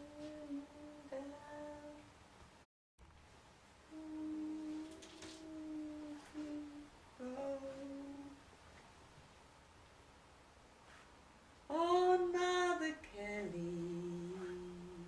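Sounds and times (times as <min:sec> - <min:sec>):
woman humming: 0:00.0 - 0:02.1, 0:03.9 - 0:08.4, 0:11.8 - 0:15.0.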